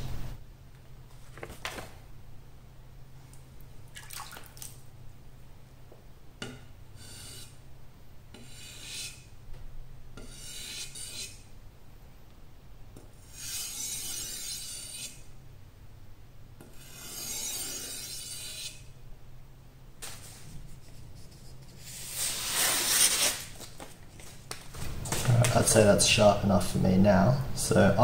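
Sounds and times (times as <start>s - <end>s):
blade scraping on whetstone: 7.0s - 7.6s, 8.3s - 9.3s, 10.2s - 11.4s, 13.2s - 15.2s, 16.6s - 18.9s.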